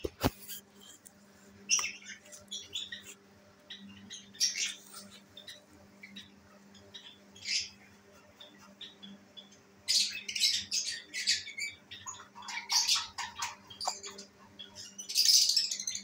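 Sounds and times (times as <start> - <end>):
birds chirping and squawking: 0.0 - 16.0
faint steady hum: 0.0 - 16.0.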